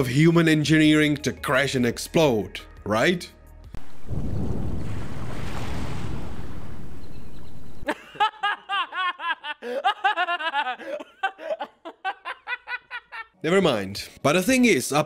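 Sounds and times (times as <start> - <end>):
rocket explosion rumbling roar: 4.1 - 7.0.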